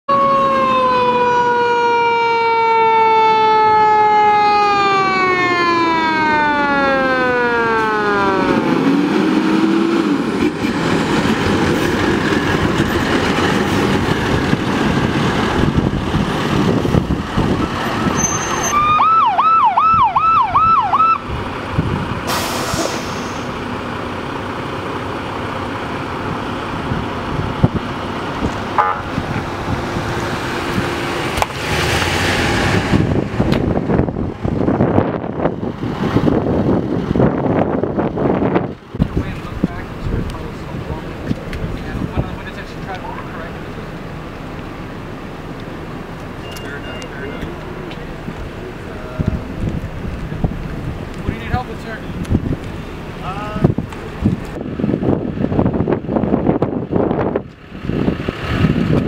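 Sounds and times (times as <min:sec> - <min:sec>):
siren yelping: 0:00.1 - 0:09.0, 0:17.6 - 0:21.3
siren winding down: 0:00.1 - 0:10.0, 0:17.4 - 0:21.3
heavy engines passing: 0:00.1 - 0:59.0
brief hiss: 0:22.3 - 0:23.6.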